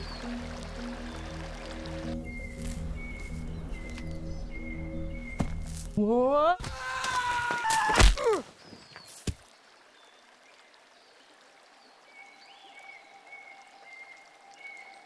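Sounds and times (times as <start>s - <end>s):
running water hiss: 0.0s - 4.6s, 8.6s - 15.0s.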